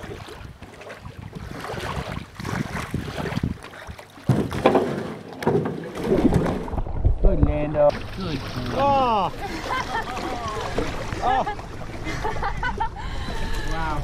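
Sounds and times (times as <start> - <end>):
water sloshing against canoe hull: 0.0 - 14.0
canoe bumping: 2.4 - 12.0.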